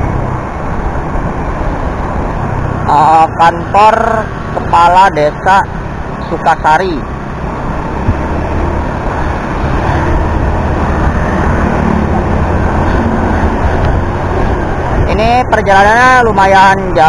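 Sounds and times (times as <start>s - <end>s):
wind rushing over camera: 0.0s - 2.9s, 7.0s - 16.2s.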